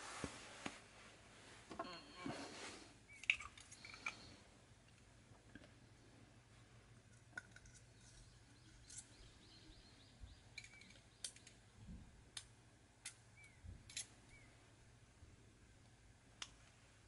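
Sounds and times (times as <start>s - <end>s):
small parts clicking: 3.2s - 4.3s, 10.5s - 11.6s, 12.4s - 14.1s.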